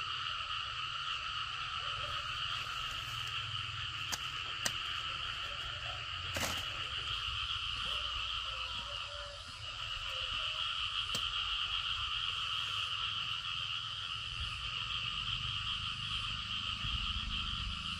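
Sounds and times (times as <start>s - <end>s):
frogs calling: 0.0s - 17.9s
corn stalks snapping: 4.0s - 5.0s, 6.3s - 6.7s, 11.1s - 11.3s.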